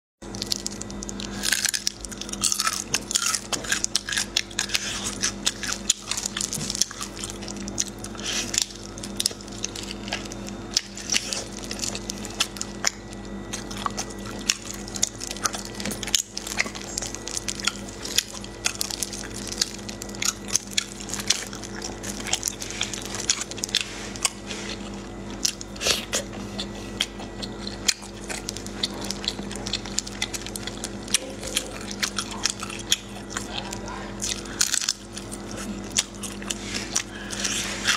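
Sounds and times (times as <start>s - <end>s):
person chewing: 0.2s - 37.9s
snail shells clicking and crackling: 0.3s - 4.6s, 5.2s - 23.7s.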